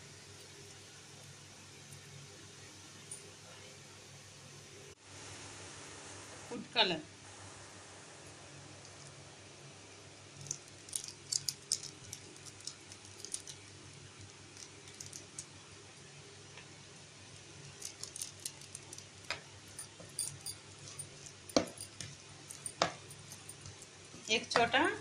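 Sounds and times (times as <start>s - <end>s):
bottle tapped and shaken: 20.0s - 23.8s.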